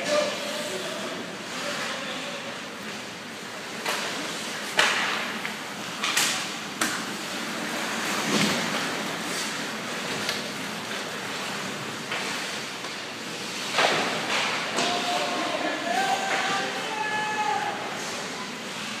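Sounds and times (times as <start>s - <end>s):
hockey sticks and puck clacking: 3.6s - 18.3s.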